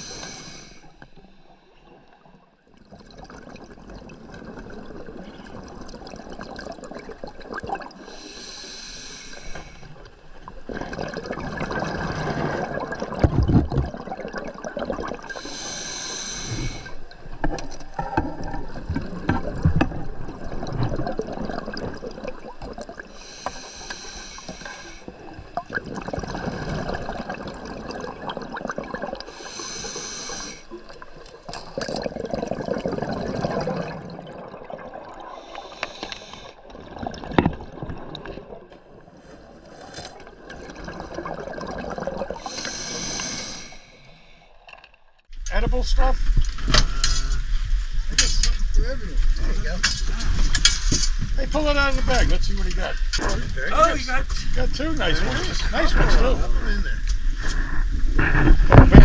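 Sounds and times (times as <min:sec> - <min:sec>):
hissing regulator inhalations: 0:00.0 - 0:01.7, 0:08.0 - 0:10.0, 0:15.3 - 0:17.1, 0:23.1 - 0:25.2, 0:29.2 - 0:30.8, 0:35.3 - 0:36.7, 0:42.4 - 0:44.6
gurgling exhaled bubbles: 0:02.2 - 0:08.6, 0:09.3 - 0:44.0.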